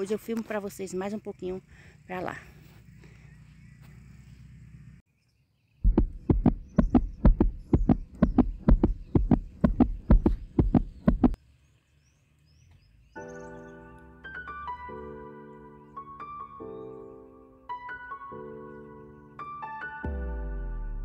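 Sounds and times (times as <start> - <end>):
heartbeat thumps: 5.8 - 11.4
soft piano music: 13.2 - 21.0.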